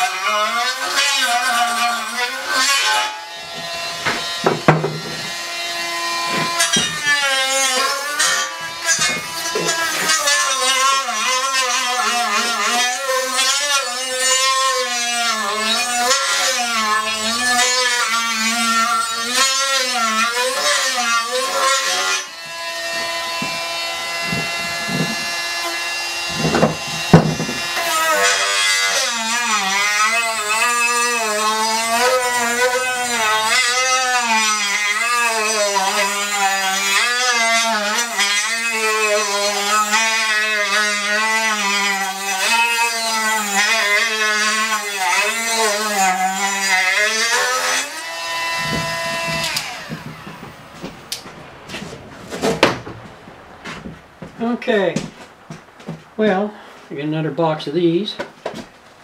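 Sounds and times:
rotary tool grinding metal: 0.0 - 51.2
sharp knocks: 3.5 - 5.4, 6.2 - 7.2, 22.5 - 25.4, 26.2 - 27.8, 48.5 - 54.4.

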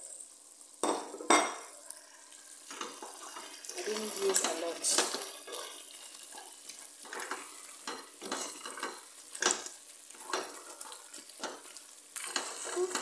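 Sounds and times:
stew sizzling: 0.0 - 13.0
wooden spoon scraping a metal pot: 2.7 - 13.0.

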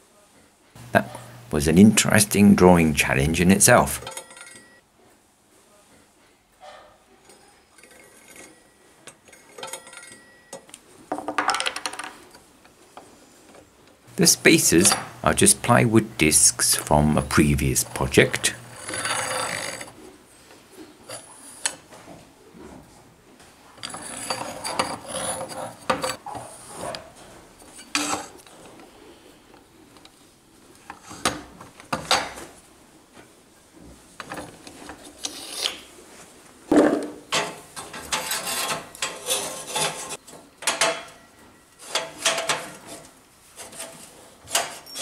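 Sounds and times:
steel parts scraping and clinking: 7.2 - 10.3, 14.2 - 15.6, 17.4 - 20.0, 23.8 - 26.2, 37.3 - 45.0.

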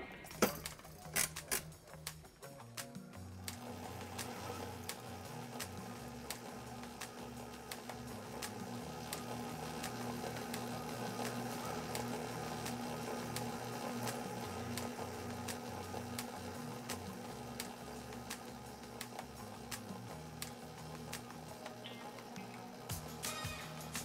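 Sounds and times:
line winding machine running: 0.0 - 24.0
soft background music: 0.0 - 24.0.

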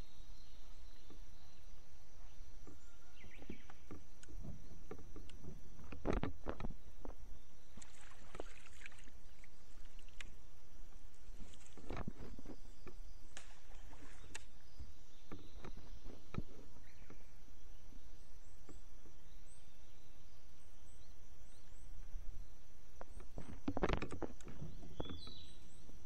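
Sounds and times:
faint high bird chirps: 0.0 - 5.3, 24.3 - 26.0
low rumble of wind and water: 0.0 - 26.0.

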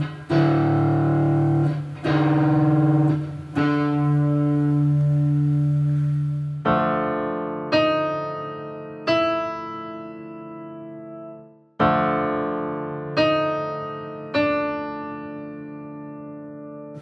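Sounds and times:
electric guitar single notes: 0.0 - 6.7
piano keyboard notes: 0.0 - 17.0.

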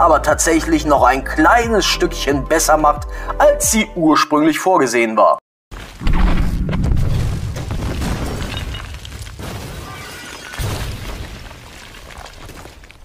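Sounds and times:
debris crashing down: 5.8 - 13.0
deep rumbling explosion boom: 6.0 - 9.8.

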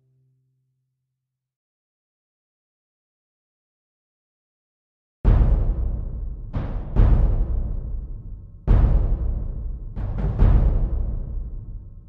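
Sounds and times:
heavy drum hits: 5.3 - 11.6
epic background music: 5.3 - 11.9.

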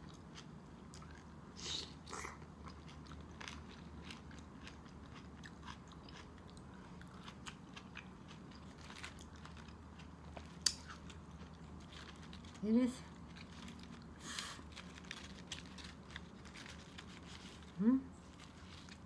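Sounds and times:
person chewing crunchy food: 0.0 - 19.0.

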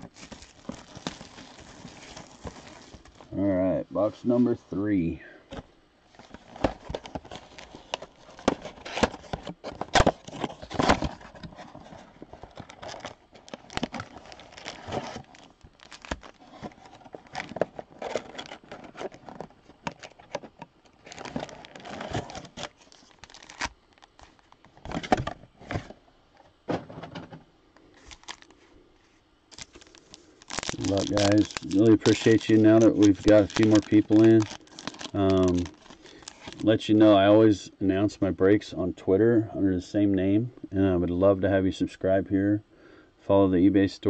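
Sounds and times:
crinkling of pack wrappers: 0.0 - 3.4, 6.1 - 25.9, 28.0 - 28.6, 29.5 - 37.2
cardboard ripping: 6.3 - 19.3, 21.0 - 24.2, 29.5 - 36.7.

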